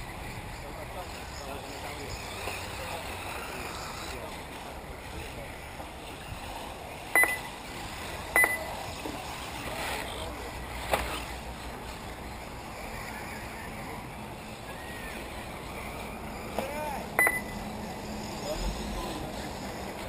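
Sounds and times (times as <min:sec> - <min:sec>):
outdoor background noise: 0:00.0 - 0:20.0
loud electronic beeps: 0:07.2 - 0:07.5, 0:17.2 - 0:17.6.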